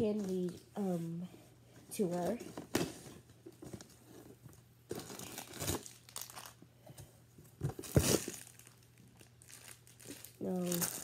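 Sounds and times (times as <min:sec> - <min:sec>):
wrappers and paper crinkling: 0:04.9 - 0:06.6, 0:07.6 - 0:11.0.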